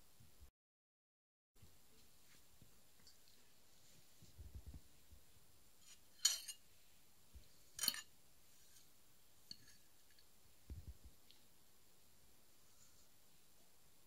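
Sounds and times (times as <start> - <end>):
metal spoon clinking: 5.9 - 6.6, 7.8 - 8.1, 9.5 - 10.2.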